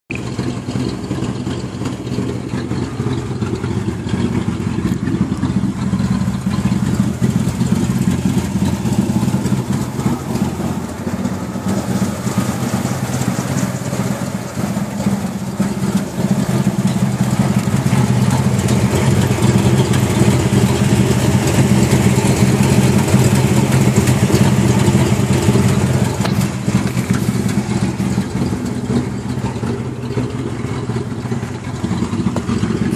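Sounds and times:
car engine idling: 0.1s - 32.9s.

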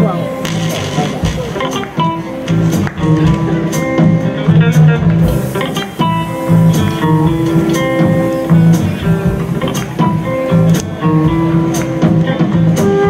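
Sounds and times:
drums: 0.0s - 13.0s
jazz guitar melody: 0.0s - 13.0s
upright bass: 0.0s - 13.0s
cymbal strokes: 5.3s - 11.8s.

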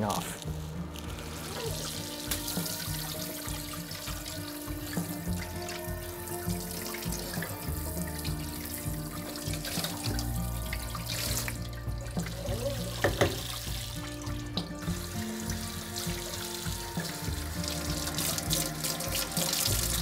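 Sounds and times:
background music: 0.0s - 20.0s
tap water splashing onto skillet: 1.2s - 20.0s.

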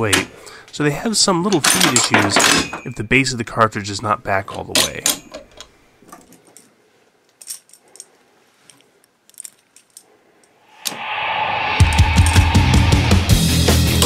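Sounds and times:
background music: 10.9s - 14.0s.

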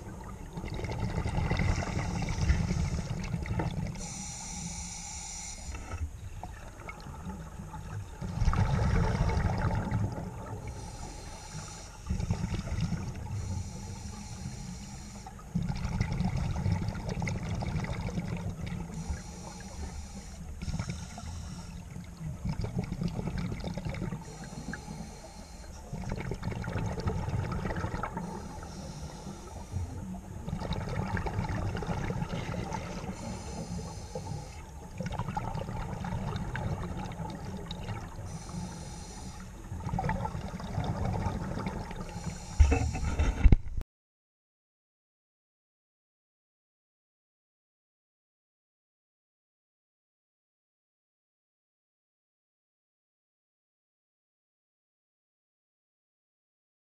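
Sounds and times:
exhaled bubbles rumbling: 0.0s - 4.1s, 6.0s - 11.1s, 12.0s - 13.7s, 15.4s - 25.0s, 25.8s - 38.8s, 39.4s - 43.8s
regulator breathing hiss: 4.0s - 6.0s, 10.6s - 12.1s, 13.3s - 15.4s, 18.9s - 22.0s, 24.2s - 25.9s, 28.2s - 30.1s, 33.0s - 34.8s, 38.2s - 39.6s, 42.0s - 43.0s.

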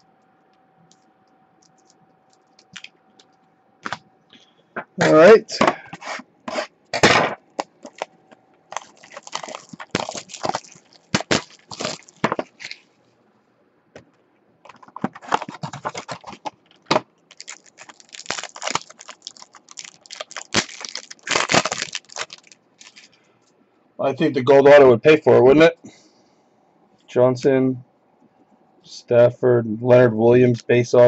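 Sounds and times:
foil card pack tearing: 7.8s - 8.1s, 8.7s - 12.8s, 14.7s - 23.1s.

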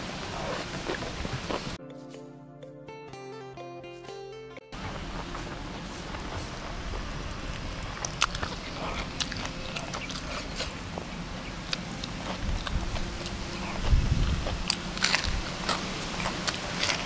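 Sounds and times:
chewing crispy food: 6.1s - 17.0s.

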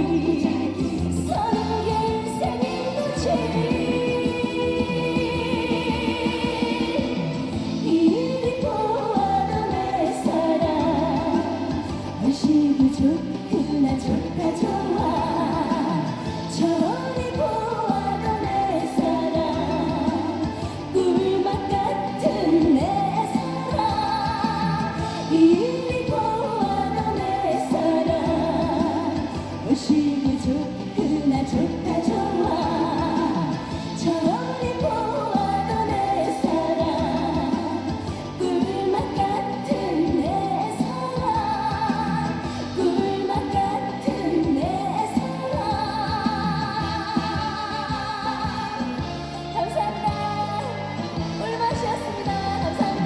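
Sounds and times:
amplified backing music: 0.0s - 53.0s
woman singing into a microphone: 0.0s - 53.0s.

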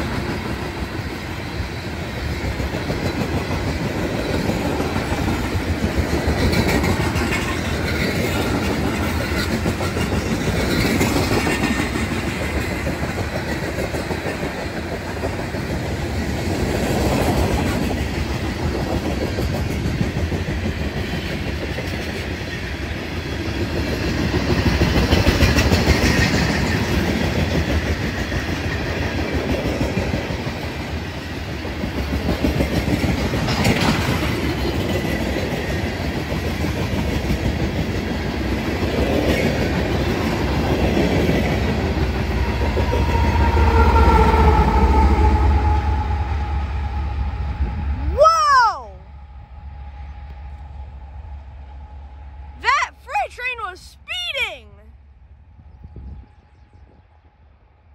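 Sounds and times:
freight train wheels rumbling: 0.0s - 57.9s
wheels clacking over rail joints: 2.2s - 30.4s.

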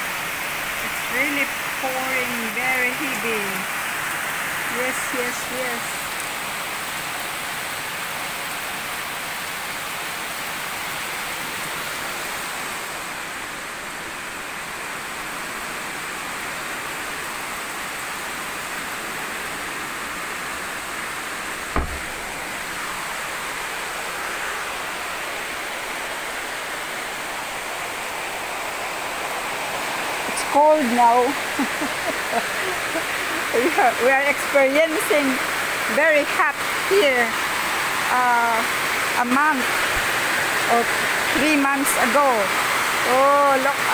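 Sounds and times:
heavy rain pouring: 0.0s - 43.9s
thump: 21.7s - 22.3s.

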